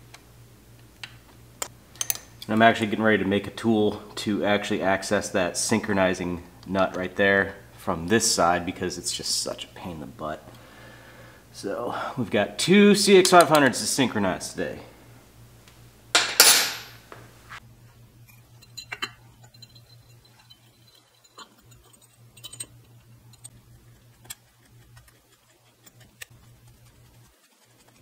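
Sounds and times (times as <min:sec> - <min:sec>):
faint steady hum: 0:00.0 - 0:28.0
metallic tool clicks and taps: 0:01.0 - 0:02.3.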